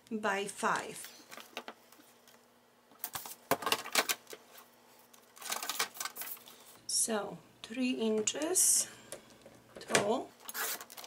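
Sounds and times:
cardstock rustling clatter: 0:05.4 - 0:06.4.

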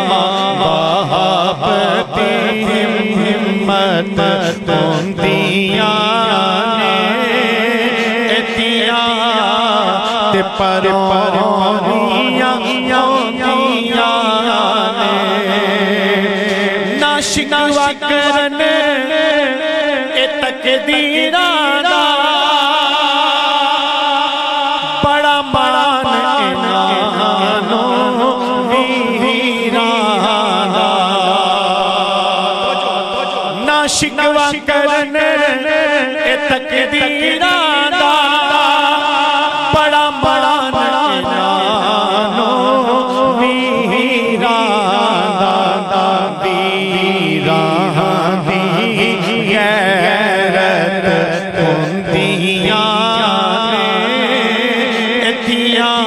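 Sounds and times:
steady held drone: 0:00.0 - 0:17.0
man chanting through a microphone: 0:00.0 - 0:56.0.

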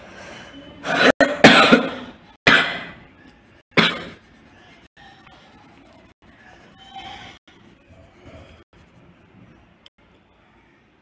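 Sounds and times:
person coughing: 0:00.9 - 0:03.0, 0:03.8 - 0:04.2.

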